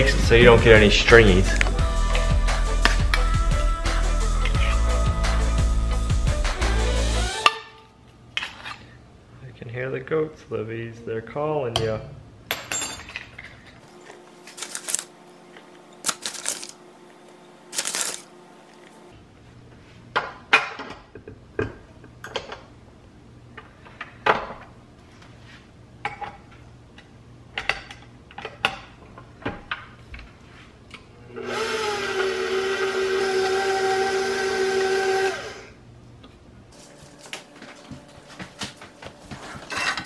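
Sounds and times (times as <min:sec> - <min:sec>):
stand mixer motor whining: 0:31.4 - 0:35.7.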